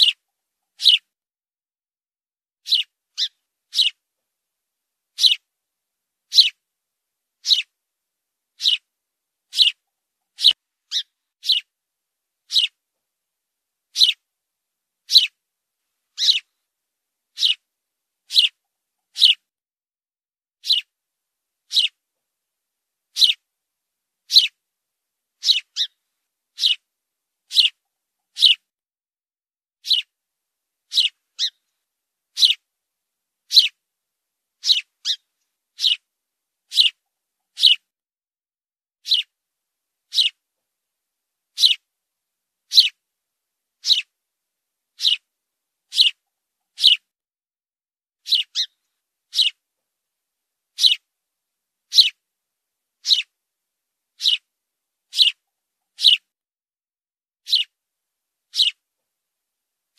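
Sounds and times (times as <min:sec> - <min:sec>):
sparrow chirping: 0:00.0 - 0:01.1, 0:02.6 - 0:04.0, 0:05.1 - 0:05.5, 0:06.3 - 0:06.6, 0:07.4 - 0:07.7, 0:08.6 - 0:08.9, 0:09.5 - 0:11.7, 0:12.5 - 0:12.8, 0:13.9 - 0:14.2, 0:15.0 - 0:15.4, 0:16.1 - 0:16.5, 0:17.3 - 0:17.7, 0:18.3 - 0:19.5, 0:20.6 - 0:20.9, 0:21.6 - 0:22.0, 0:23.1 - 0:23.4, 0:24.3 - 0:24.6, 0:25.4 - 0:26.9, 0:27.5 - 0:28.7, 0:29.8 - 0:30.1, 0:30.9 - 0:31.7, 0:32.3 - 0:32.7, 0:33.5 - 0:33.8, 0:34.6 - 0:36.1, 0:36.7 - 0:37.9, 0:39.0 - 0:39.3, 0:40.1 - 0:40.4, 0:41.5 - 0:41.9, 0:42.7 - 0:43.0, 0:43.8 - 0:44.1, 0:45.0 - 0:45.3, 0:45.9 - 0:47.1, 0:48.2 - 0:49.6, 0:50.8 - 0:51.1, 0:51.9 - 0:52.2, 0:53.0 - 0:53.3, 0:54.2 - 0:54.5, 0:55.1 - 0:56.3, 0:57.4 - 0:57.8, 0:58.5 - 0:58.8.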